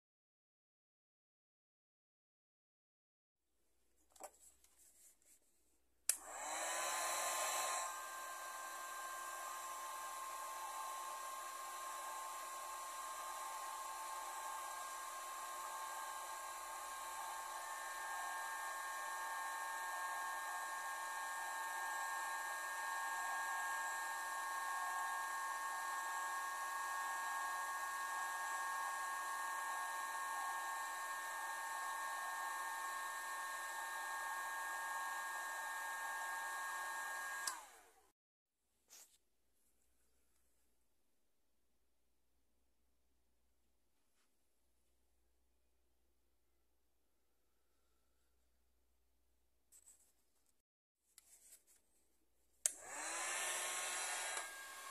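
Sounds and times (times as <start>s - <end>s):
blower switch click: 37.4s - 37.6s.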